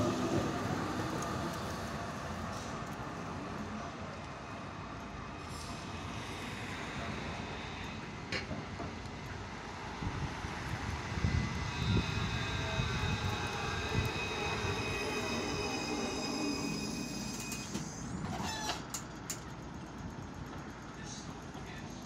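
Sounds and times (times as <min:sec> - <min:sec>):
tram rumbling on rails: 0:00.0 - 0:22.0
high-pitched tram whine: 0:05.4 - 0:19.0.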